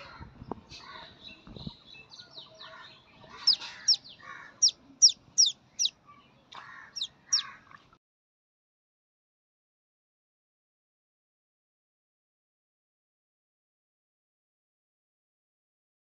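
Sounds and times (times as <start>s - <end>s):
duckling peeping: 3.3s - 6.0s, 6.8s - 7.6s.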